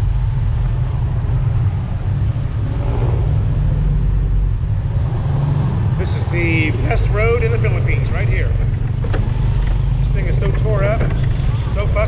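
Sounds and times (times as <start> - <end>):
wind buffeting microphone: 0.0 - 6.0
motorcycle running: 0.0 - 12.0.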